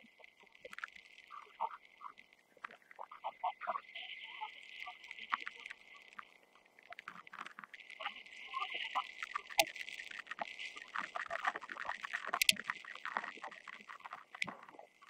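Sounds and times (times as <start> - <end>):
small knocks and clicks: 12.2 - 13.4.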